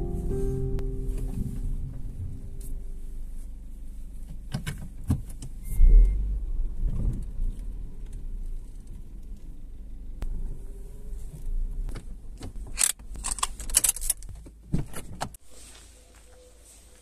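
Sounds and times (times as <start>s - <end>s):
car engine rumbling: 0.0s - 16.8s.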